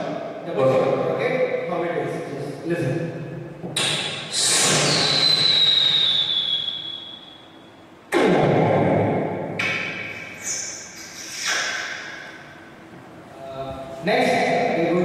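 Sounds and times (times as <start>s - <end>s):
mouth hiss with falling whistle: 3.8s - 7.8s.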